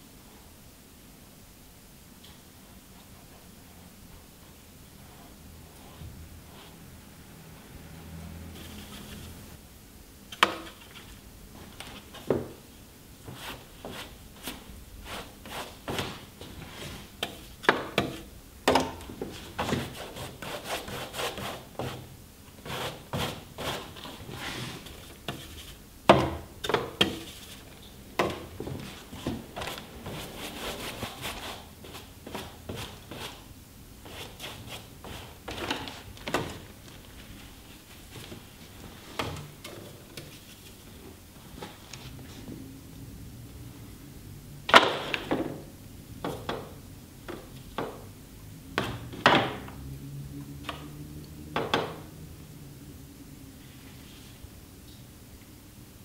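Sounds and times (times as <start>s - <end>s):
brush scrubbing across paper: 13.2s - 18.3s, 19.3s - 25.8s, 27.0s - 27.7s, 28.7s - 36.1s.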